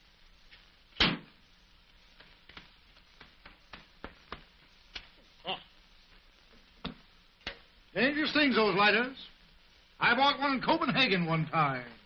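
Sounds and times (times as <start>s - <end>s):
film soundtrack hiss: 0.0s - 12.0s
sharp knock: 1.0s - 1.3s.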